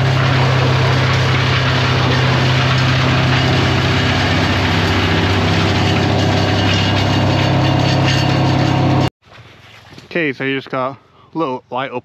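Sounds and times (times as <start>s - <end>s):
large engine idling: 0.0s - 9.1s.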